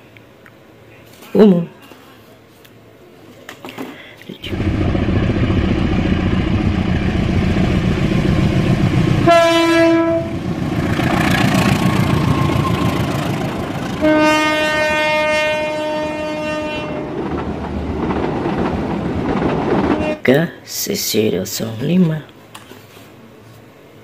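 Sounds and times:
train rumble and rail noise: 4.4 - 22.6
locomotive horn blasts: 9.2 - 10.4, 13.8 - 17.2.

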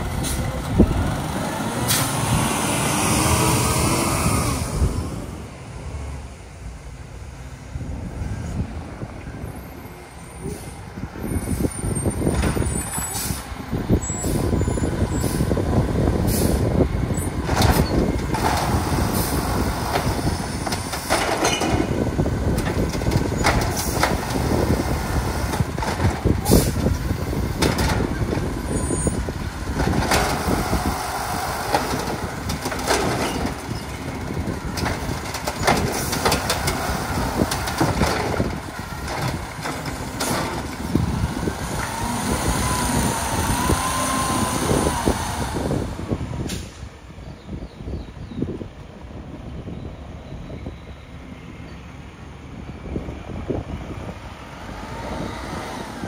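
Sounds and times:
truck engine running under load: 0.0 - 56.0.

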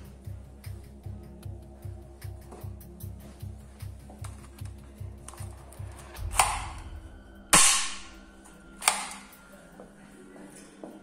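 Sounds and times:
toy pistol shot: 7.6 - 8.1, 8.8 - 9.3.

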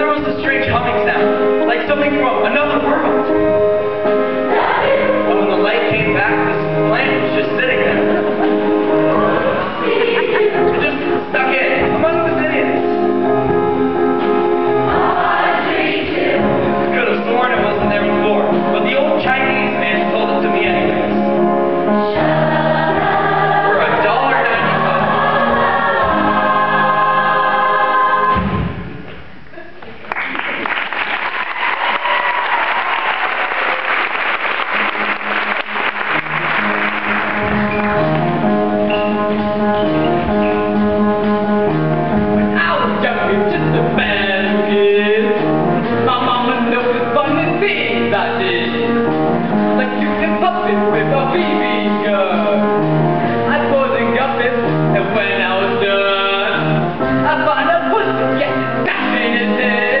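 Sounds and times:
audience applause: 29.9 - 38.2
instrumental music with steady beat: 36.0 - 53.5.

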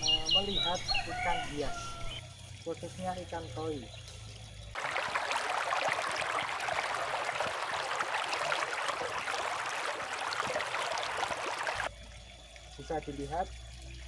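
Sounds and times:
water babbling over rocks: 4.8 - 11.9.

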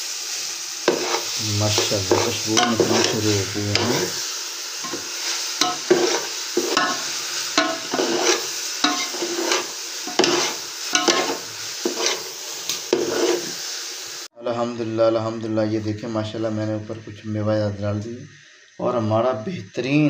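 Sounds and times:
ghee sizzling: 0.0 - 20.0
spatula scraping steel pot: 0.9 - 4.2, 4.8 - 13.6.

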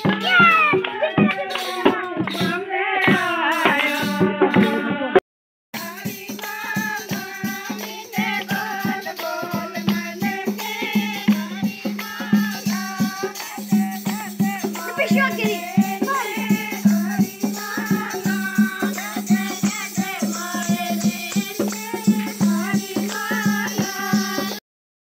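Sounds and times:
shaker rattle percussion: 0.0 - 4.9, 5.8 - 24.6
person singing: 0.0 - 5.2, 14.8 - 16.6
steady beat: 14.1 - 19.0.

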